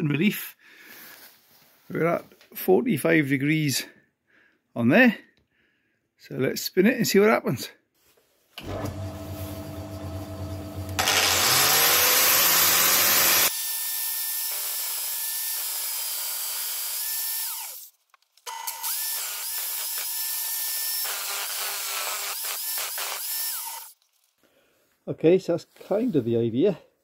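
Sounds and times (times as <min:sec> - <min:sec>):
angle grinder grinding metal: 0:08.6 - 0:17.9, 0:18.5 - 0:24.0.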